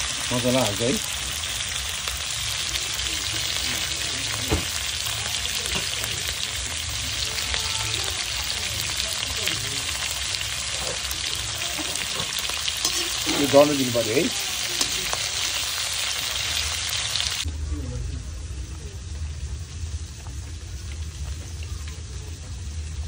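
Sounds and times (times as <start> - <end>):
vegetables sizzling in a wok: 0.0 - 23.0
metal spatula stirring: 11.8 - 14.0.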